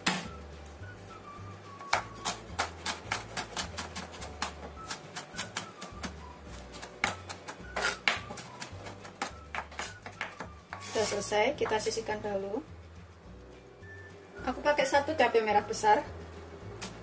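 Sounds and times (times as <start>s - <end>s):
soft background music: 0.0s - 17.0s
knife chopping on wooden board: 1.8s - 11.8s.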